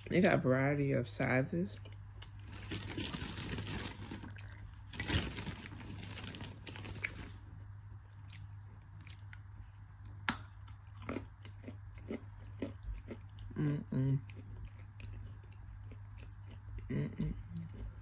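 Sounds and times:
person chewing and crunching clay: 1.8s - 5.2s, 8.0s - 18.0s.

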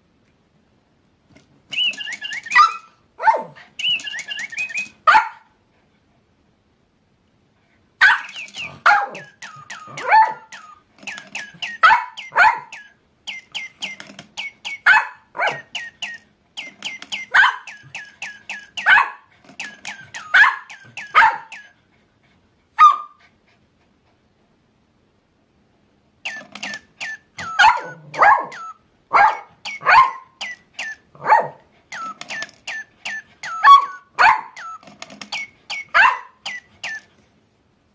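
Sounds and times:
toy bird electronic chirps: 1.7s - 2.9s, 3.8s - 5.0s, 8.1s - 21.8s, 26.2s - 28.8s, 29.5s - 31.2s, 31.9s - 37.1s
dog yipping and yowling: 1.8s - 4.0s, 8.0s - 10.8s, 11.5s - 12.9s, 14.7s - 16.1s, 17.2s - 21.8s, 22.8s - 23.3s, 27.1s - 32.1s, 32.8s - 34.8s, 35.8s - 36.6s.

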